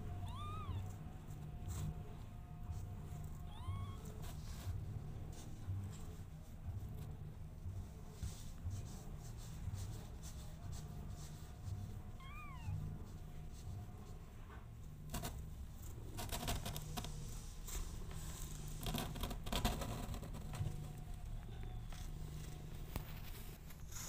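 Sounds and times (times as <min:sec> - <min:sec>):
kitten mewing: 0:00.1 - 0:01.0, 0:03.4 - 0:04.1.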